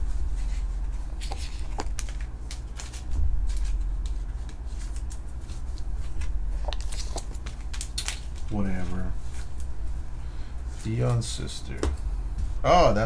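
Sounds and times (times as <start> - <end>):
cards in plastic sleeves handled: 0.4 - 9.7.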